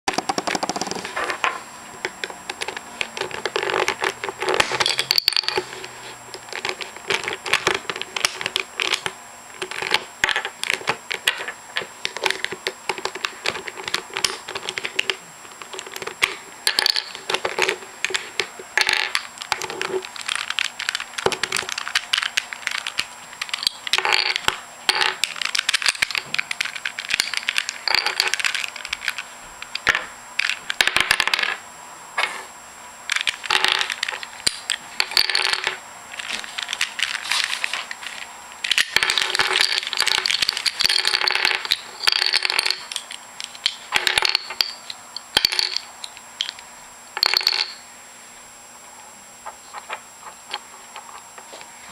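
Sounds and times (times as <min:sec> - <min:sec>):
plastic cube pieces clicking: 0:00.1 - 0:01.0, 0:06.5 - 0:31.2.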